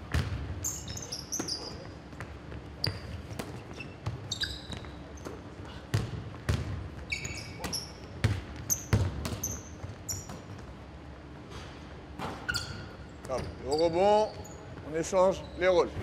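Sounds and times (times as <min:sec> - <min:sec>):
basketball bouncing on wooden floor: 0:00.0 - 0:04.9, 0:05.9 - 0:10.7
basketball shoes squeaking: 0:00.0 - 0:16.0.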